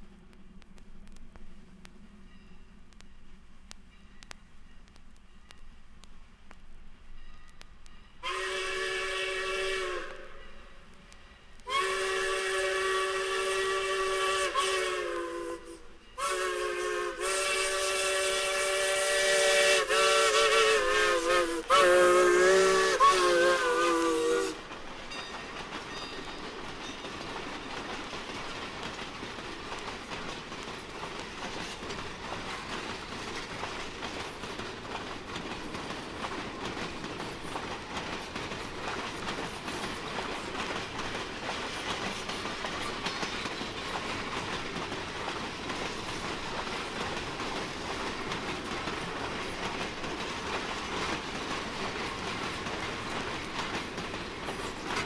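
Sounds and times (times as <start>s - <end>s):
train rolling past: 0.0s - 55.0s
steam locomotive chime whistle: 7.1s - 27.0s.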